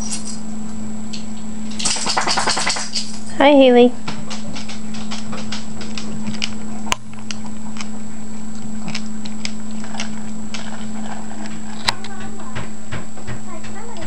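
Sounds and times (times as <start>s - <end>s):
steady low hum: 0.0s - 14.0s
dog crunching dry kibble: 4.2s - 12.4s.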